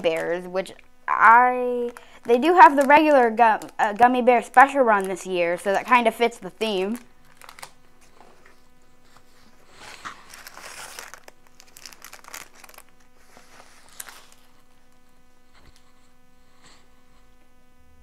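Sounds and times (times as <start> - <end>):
plastic packet crinkling: 0.0 - 7.8, 9.7 - 15.1
faint steady hum: 0.0 - 18.0
hands rustling in fabric bag: 7.3 - 15.8.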